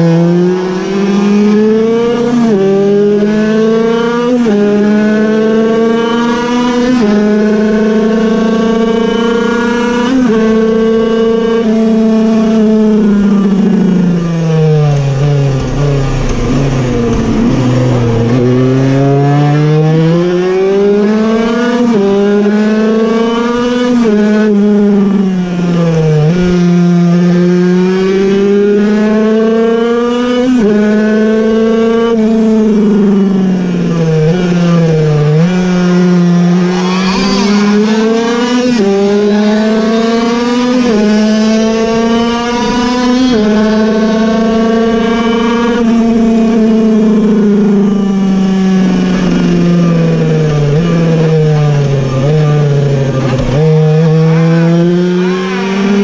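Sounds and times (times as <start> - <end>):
two-stroke racing engine revving: 0.0 - 56.0.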